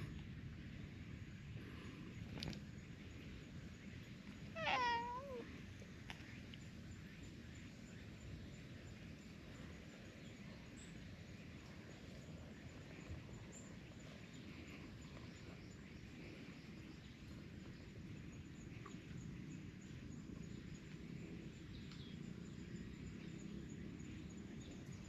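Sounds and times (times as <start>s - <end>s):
faint outdoor background noise: 0.0s - 25.0s
cat meowing: 4.6s - 5.5s.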